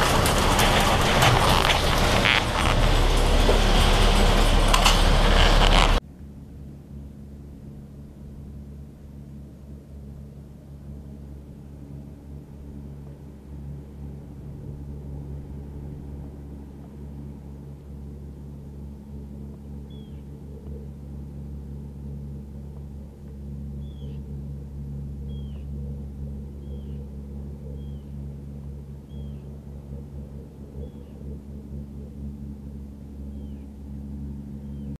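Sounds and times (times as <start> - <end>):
bird calling downward-sliding notes: 0.0 - 6.0, 10.2 - 35.0
boat diesel engine rumbling: 0.0 - 35.0.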